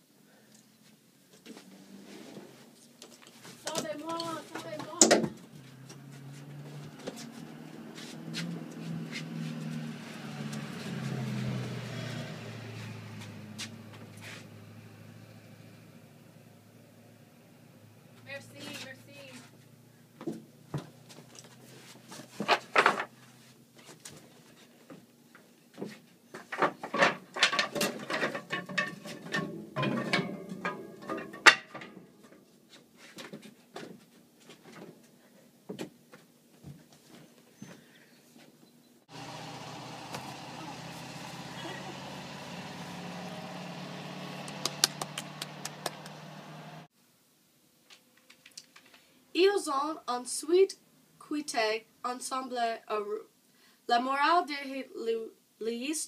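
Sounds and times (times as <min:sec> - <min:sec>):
clicks and knocks: 0:26.5 - 0:32.0
low motor hum: 0:39.1 - 0:46.9.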